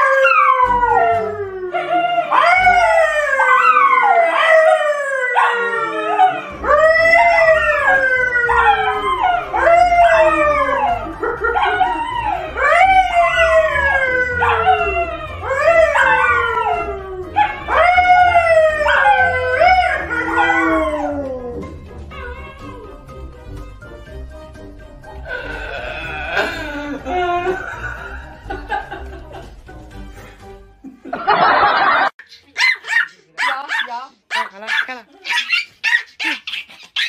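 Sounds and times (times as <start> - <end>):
dogs howling: 0.0 - 23.1
person howling: 5.6 - 22.9, 25.2 - 28.1.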